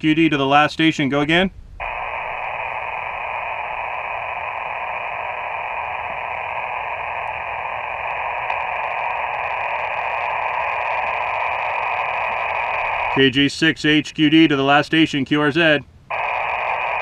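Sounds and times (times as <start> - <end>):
radio receiver hiss: 1.8 - 13.8, 16.1 - 17.0.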